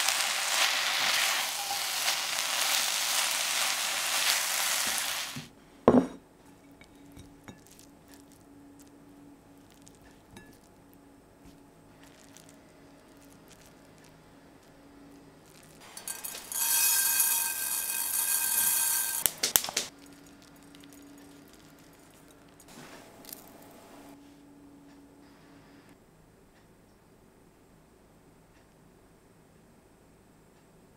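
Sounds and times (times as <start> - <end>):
sesame seeds sprinkling rattle: 0.0 - 5.5, 12.0 - 23.6
ceramic bowl clinking on wood: 5.9 - 7.8, 15.8 - 19.5.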